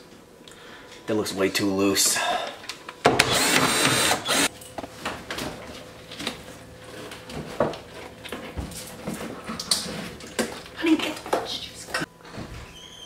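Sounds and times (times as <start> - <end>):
cordless drill running: 3.2 - 4.5.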